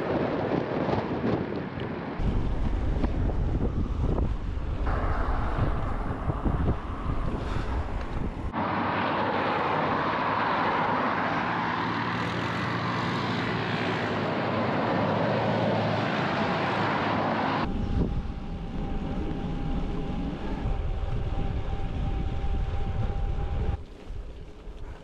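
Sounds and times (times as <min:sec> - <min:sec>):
wind over microphone: 0:00.0 - 0:25.0
faint steady whine: 0:02.2 - 0:08.5, 0:17.6 - 0:23.8
engine noise: 0:02.2 - 0:23.9.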